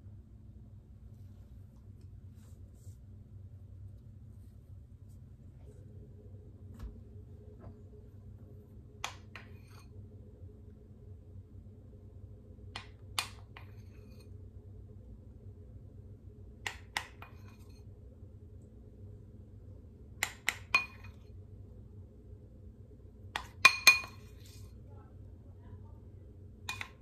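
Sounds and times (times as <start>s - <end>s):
faint low hum: 0.0s - 27.0s
metal spoon clinking glass bowl: 20.5s - 21.2s, 23.4s - 24.3s.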